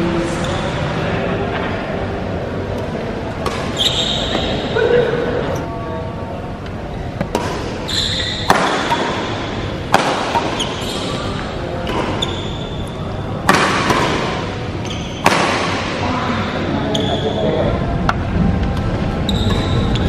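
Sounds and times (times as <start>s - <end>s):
rackets hitting shuttlecock: 3.3s - 4.7s, 7.2s - 16.0s, 19.4s - 20.0s
shoes squeaking on court: 3.4s - 4.8s, 7.1s - 9.6s, 10.2s - 13.2s, 14.5s - 15.3s, 16.8s - 17.4s, 19.2s - 20.0s.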